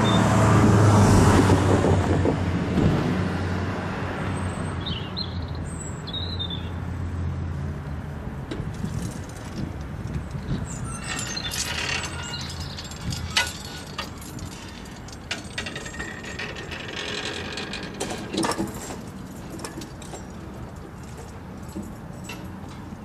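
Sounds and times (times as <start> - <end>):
barrier clanking and clicking: 8.5 - 23.0
metal grid jangling: 10.2 - 23.0.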